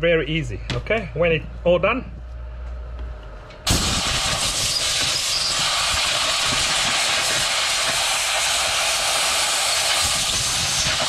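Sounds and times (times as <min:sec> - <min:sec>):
compressed air blow gun hissing: 0:03.7 - 0:11.0.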